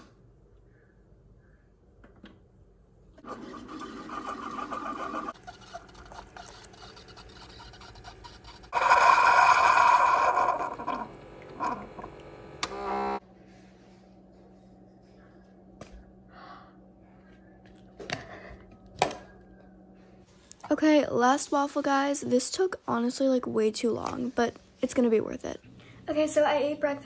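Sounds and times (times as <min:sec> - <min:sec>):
coffee maker sputtering: 0:03.2 - 0:13.2
pod coffee maker brewing: 0:03.2 - 0:13.2.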